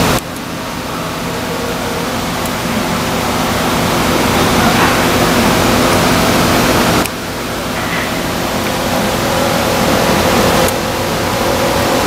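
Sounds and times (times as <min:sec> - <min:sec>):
machinery hum with rushing air: 0:00.0 - 0:12.0.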